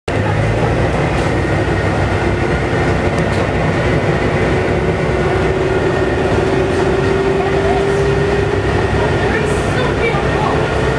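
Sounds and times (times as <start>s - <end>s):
bus diesel engine rumbling: 0.1s - 10.9s.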